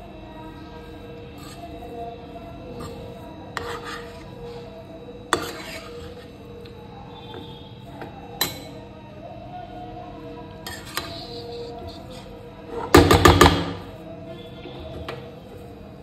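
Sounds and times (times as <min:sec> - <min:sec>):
spoon stirring frying carrot: 0:01.3 - 0:02.0, 0:02.7 - 0:04.7, 0:05.3 - 0:06.3, 0:10.6 - 0:13.0.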